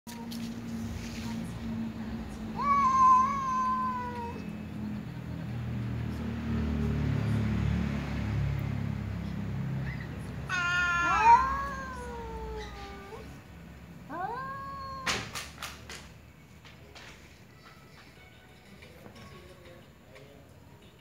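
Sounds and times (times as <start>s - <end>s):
cat meowing: 2.5s - 4.6s, 10.4s - 13.4s, 14.1s - 15.3s
cat yowling: 2.5s - 4.6s, 10.4s - 13.4s, 14.1s - 15.4s
cat growling: 2.6s - 4.5s, 10.5s - 13.4s, 14.1s - 15.1s.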